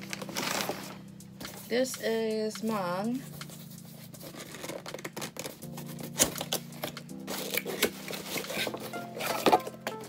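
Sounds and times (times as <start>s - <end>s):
background music: 0.0s - 10.0s
cardboard box tearing: 4.3s - 6.6s.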